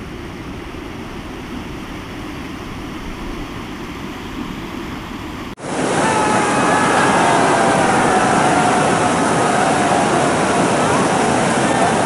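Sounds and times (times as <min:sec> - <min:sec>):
river flowing over stones: 0:05.6 - 0:12.0.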